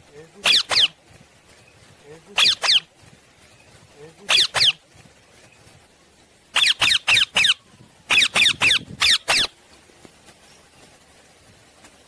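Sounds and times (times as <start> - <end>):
parakeet screeching calls: 0.4 - 1.0, 2.4 - 2.9, 4.3 - 4.8, 6.5 - 9.5.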